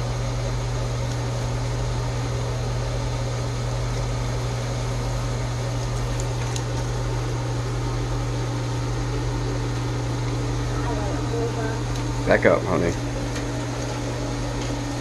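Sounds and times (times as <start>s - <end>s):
machine hum with hiss: 0.0s - 15.0s.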